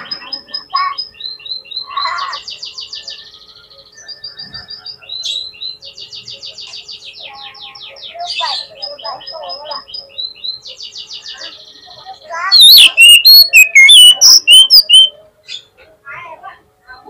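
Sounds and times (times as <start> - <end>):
bird singing high note runs: 1.0 - 15.6
bird warbling lower phrase: 12.4 - 15.1.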